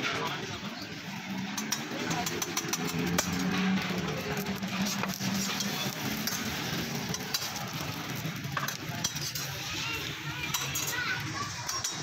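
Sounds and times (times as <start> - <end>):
metal spatulas scraping griddle: 1.5 - 9.8.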